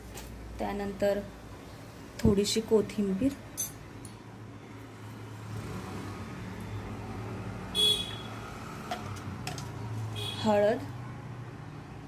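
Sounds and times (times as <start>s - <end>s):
road traffic rumble: 0.0s - 12.0s
vehicle horn toot: 7.7s - 8.4s, 10.2s - 10.5s.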